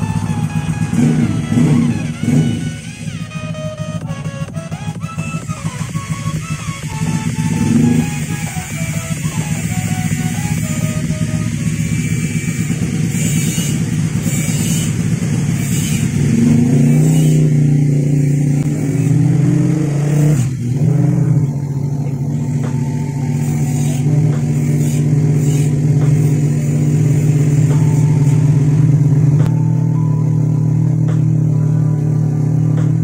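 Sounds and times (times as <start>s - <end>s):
motorcycle engine running: 0.0s - 33.0s.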